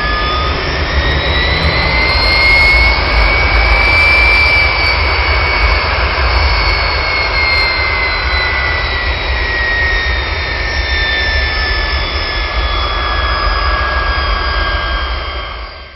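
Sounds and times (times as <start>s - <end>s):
high falling engine whine: 0.0s - 15.9s
turbojet engine running down: 0.0s - 15.9s.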